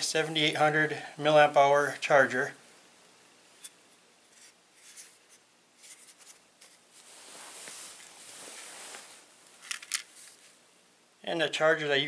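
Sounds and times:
scratchy rubbing and rustling: 0:04.3 - 0:10.6.

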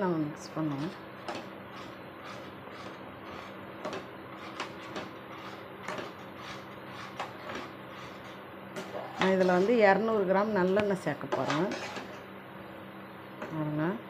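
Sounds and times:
steady low hum: 0:00.0 - 0:14.0
ladle scraping dough in a pan: 0:00.6 - 0:10.0, 0:10.6 - 0:12.3.

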